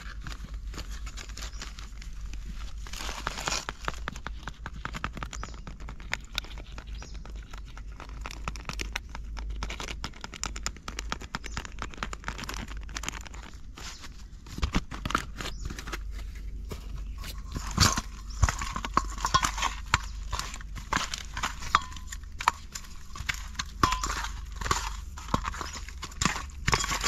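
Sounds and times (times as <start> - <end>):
paper packet crinkling: 0.0 - 27.0
low hum: 14.2 - 27.0.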